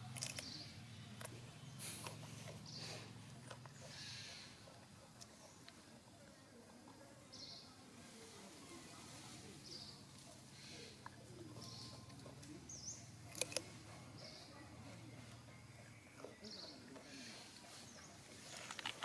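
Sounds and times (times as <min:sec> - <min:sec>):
monkey crunching carrot: 0:00.0 - 0:00.6, 0:13.2 - 0:13.8.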